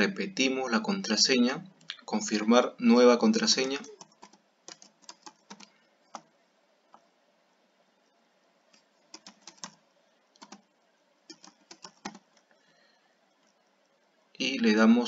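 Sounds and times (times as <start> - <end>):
keyboard typing: 3.5 - 6.3, 8.7 - 12.6.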